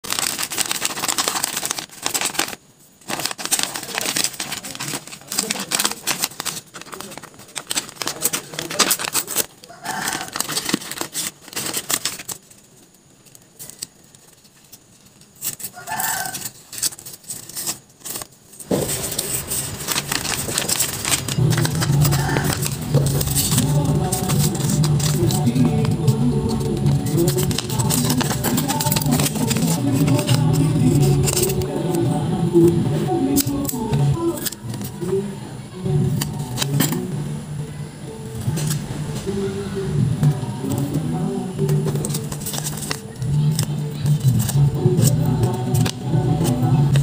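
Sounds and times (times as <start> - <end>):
paper crinkling and rustling: 0.0 - 35.4, 36.1 - 37.1, 38.2 - 39.4, 40.2 - 47.0
music: 19.8 - 47.0.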